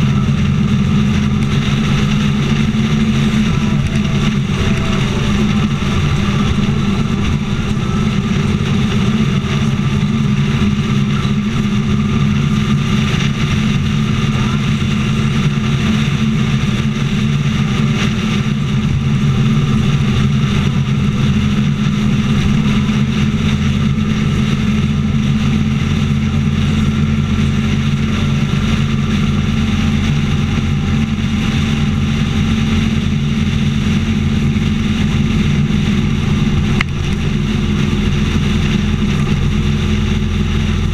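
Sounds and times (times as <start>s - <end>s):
motorcycle engine cruising: 0.0s - 40.9s
road and wind noise: 0.0s - 40.9s.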